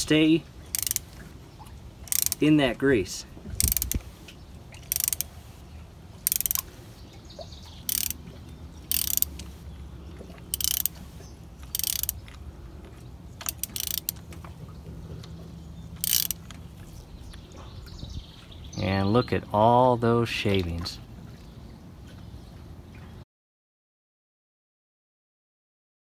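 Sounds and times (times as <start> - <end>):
socket ratchet clicking: 0.7 - 1.0, 2.0 - 2.4, 3.6 - 4.0, 4.8 - 5.3, 6.2 - 6.6, 7.8 - 8.2, 8.9 - 9.4, 10.5 - 11.0, 11.7 - 12.2, 13.4 - 14.2, 16.0 - 16.6.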